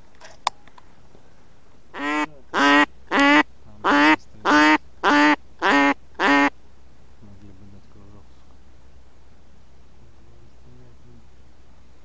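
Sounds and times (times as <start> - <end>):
duck quacking: 1.9 - 6.5.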